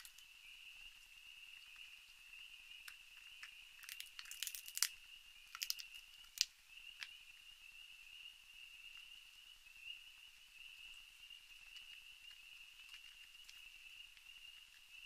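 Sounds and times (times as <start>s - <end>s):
raccoons crunching food: 0.0s - 7.4s, 11.4s - 15.0s
night insects droning: 0.0s - 15.0s.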